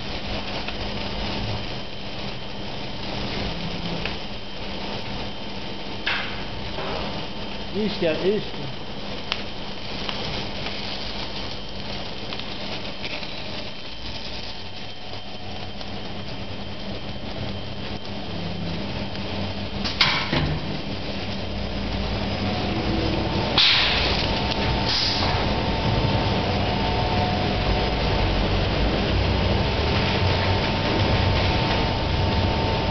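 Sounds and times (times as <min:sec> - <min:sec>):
machine motors humming: 0:00.0 - 0:32.9
sharp hissing burst: 0:22.7 - 0:25.6.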